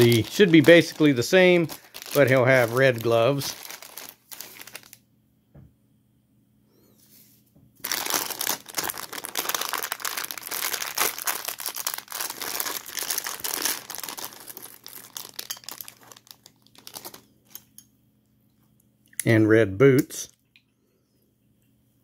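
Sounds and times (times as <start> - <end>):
plastic bag crinkling: 0.0 - 5.0, 7.8 - 17.7.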